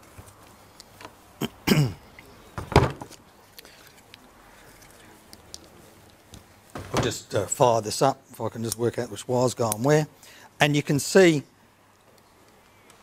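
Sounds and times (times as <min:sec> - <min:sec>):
faint clicks of small parts: 0:00.2 - 0:01.2, 0:03.1 - 0:06.4, 0:11.9 - 0:13.0
person clearing throat: 0:01.4 - 0:02.1
person coughing: 0:01.4 - 0:02.1.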